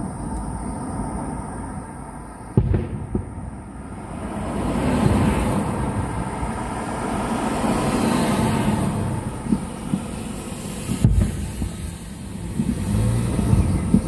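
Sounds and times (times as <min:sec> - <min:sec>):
low rumble of bursts: 0:00.0 - 0:14.0
firework bangs: 0:02.5 - 0:06.5, 0:08.6 - 0:14.0
firework shells bursting: 0:02.6 - 0:03.6, 0:09.4 - 0:14.0.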